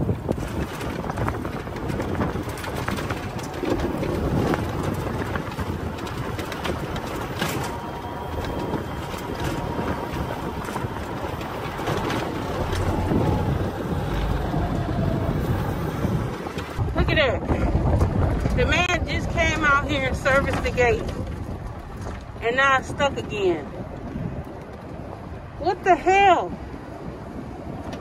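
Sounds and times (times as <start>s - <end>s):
tyres crunching over snow: 0.0s - 24.1s
wind buffeting microphone: 0.0s - 28.0s.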